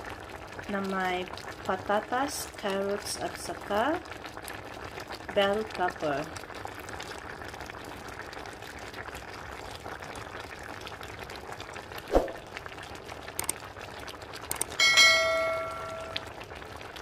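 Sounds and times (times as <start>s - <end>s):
sharp click: 14.5s - 14.8s
bright bell chime: 14.8s - 16.3s.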